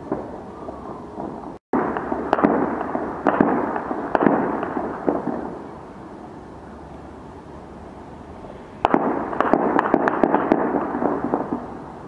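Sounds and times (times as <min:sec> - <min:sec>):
sharp loud gunshots: 0:01.2 - 0:05.7, 0:08.8 - 0:11.8
distant gunfire crackle: 0:01.2 - 0:05.8, 0:08.8 - 0:11.8.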